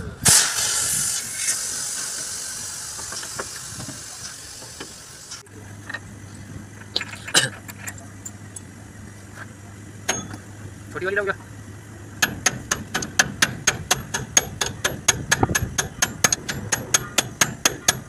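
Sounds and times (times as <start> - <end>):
steady low hum: 0.0 - 18.0
compressed air hissing: 0.2 - 5.4
metallic clicks and knocks: 12.2 - 18.0.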